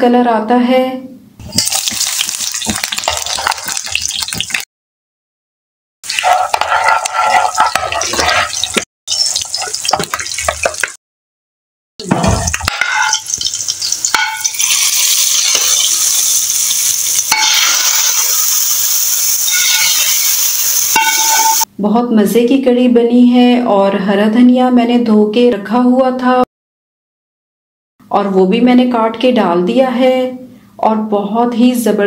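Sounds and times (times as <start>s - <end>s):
spices sizzling in hot oil: 1.4s - 4.7s, 6.0s - 11.0s, 12.5s - 21.7s
metal spoon clinking on pan: 12.6s - 15.8s, 17.3s - 18.2s, 19.5s - 20.2s, 21.0s - 21.7s.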